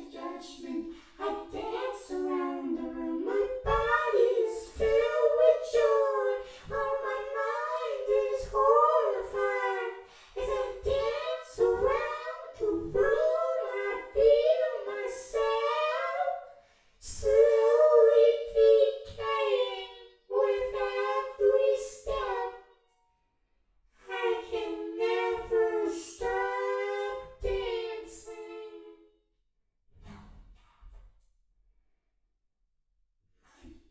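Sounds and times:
high voice singing unaccompanied: 0.0s - 16.4s, 17.0s - 22.7s, 24.0s - 29.0s.

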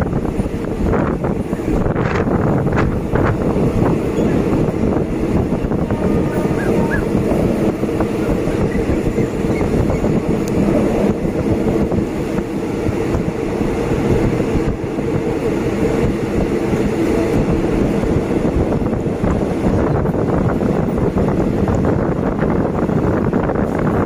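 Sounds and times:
rushing air: 0.0s - 24.0s
train wheels on rails: 0.0s - 24.0s.

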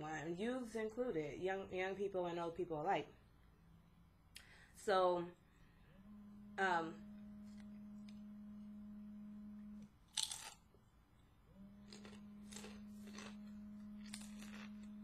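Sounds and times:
mobile phone vibrating: 5.7s - 10.0s, 11.4s - 15.0s
crunchy bites and chewing: 10.0s - 15.0s.

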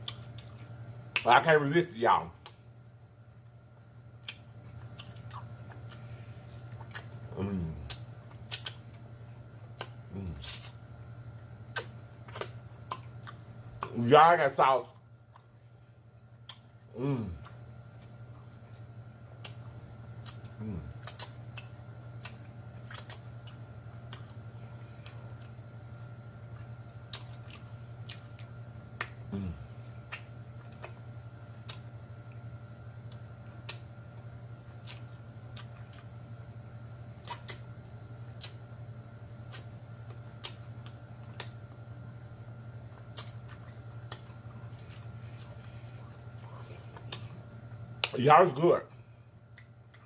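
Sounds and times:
wet mouth eating sounds: 0.0s - 1.3s, 4.1s - 9.1s, 9.7s - 10.8s, 11.6s - 14.0s, 16.4s - 38.7s, 39.3s - 41.7s, 42.7s - 48.2s
steady low hum: 0.0s - 50.0s.

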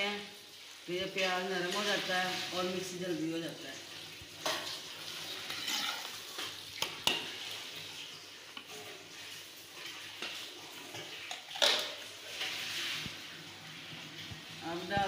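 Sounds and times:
onions sizzling in oil: 0.0s - 15.0s
metal spoon stirring and scraping: 4.4s - 7.8s, 8.5s - 13.3s.

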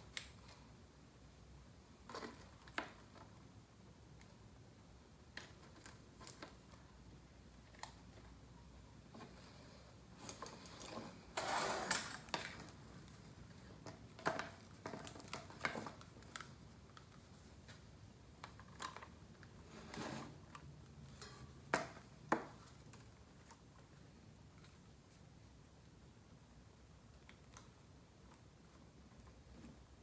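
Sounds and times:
wires clicking and rustling: 1.9s - 19.7s.

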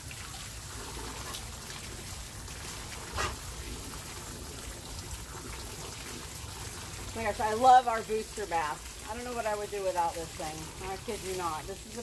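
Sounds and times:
water splashing in plastic tub: 0.0s - 12.0s.

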